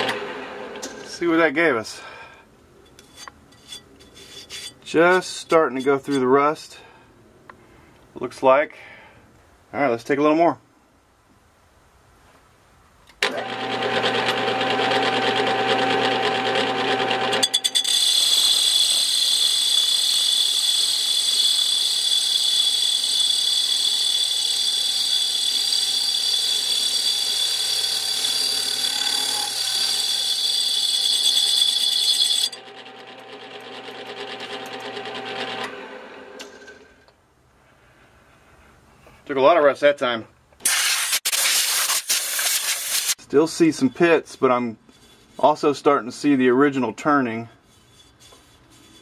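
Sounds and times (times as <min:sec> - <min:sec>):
lathe motor humming: 0:13.2 - 0:17.5, 0:20.6 - 0:36.4
high-pitched cutting squeal: 0:17.4 - 0:32.6.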